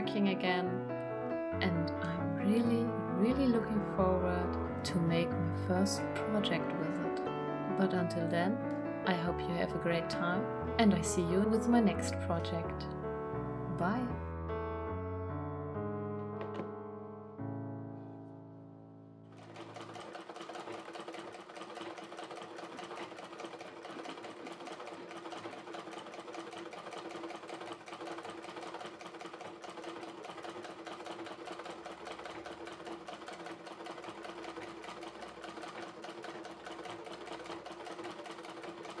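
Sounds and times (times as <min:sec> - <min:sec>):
sewing machine clattering: 0:19.3 - 0:39.0.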